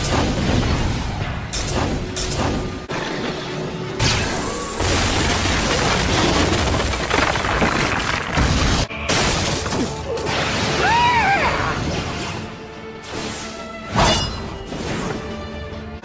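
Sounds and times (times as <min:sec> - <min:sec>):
dramatic background music: 0:00.0 - 0:06.5, 0:08.6 - 0:16.0
wood splintering and cracking: 0:04.9 - 0:10.0.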